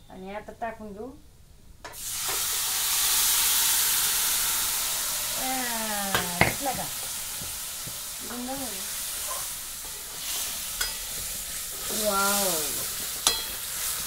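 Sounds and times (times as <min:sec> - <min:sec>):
minced meat sizzling in a pan: 0:01.9 - 0:14.0
ladle clinking against pan: 0:13.2 - 0:13.6.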